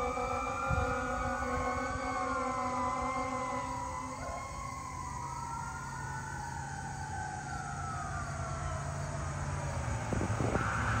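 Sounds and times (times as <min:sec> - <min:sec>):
fire engine siren wailing: 0:00.0 - 0:11.0
truck engine hum: 0:00.0 - 0:11.0.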